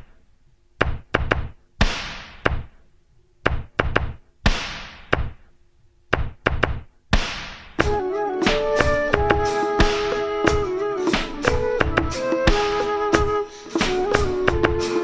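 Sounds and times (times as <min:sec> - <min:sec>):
percussion knocks and thumps: 0:00.8 - 0:02.8, 0:03.4 - 0:05.4, 0:06.1 - 0:15.0.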